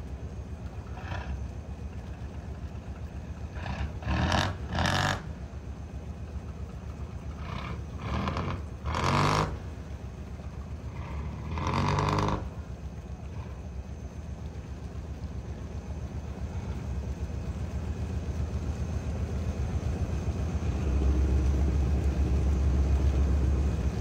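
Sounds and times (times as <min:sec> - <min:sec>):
diesel engine idling: 0:00.0 - 0:24.0
engine revving bursts: 0:03.5 - 0:05.4, 0:07.4 - 0:09.8, 0:10.9 - 0:12.7.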